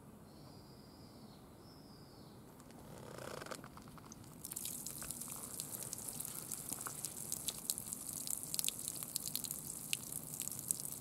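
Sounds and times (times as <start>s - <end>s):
water splashing onto gravel: 4.2s - 11.0s.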